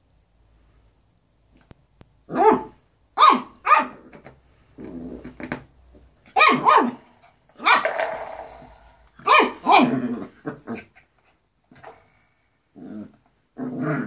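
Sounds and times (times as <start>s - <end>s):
dog barking: 2.4s - 4.0s, 6.4s - 7.9s, 9.2s - 9.9s.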